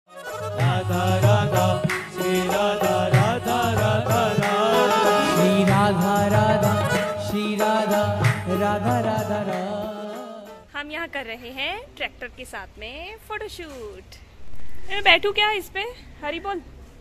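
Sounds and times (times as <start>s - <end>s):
percussion: 0.1s - 10.7s
person singing: 0.2s - 10.6s.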